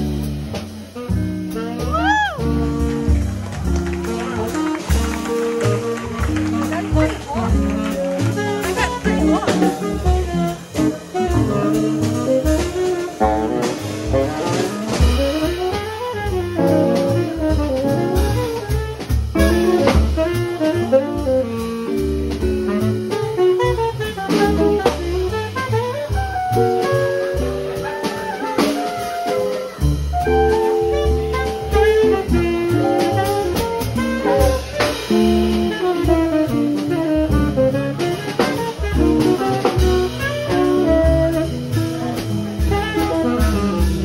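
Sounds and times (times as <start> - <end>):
drum kit with cymbals: 0.0 - 44.0
plucked double bass: 0.0 - 44.0
tenor saxophone: 0.0 - 44.0.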